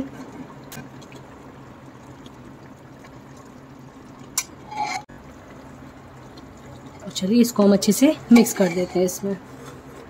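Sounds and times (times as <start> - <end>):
spoon scraping wet paste: 8.3 - 9.1.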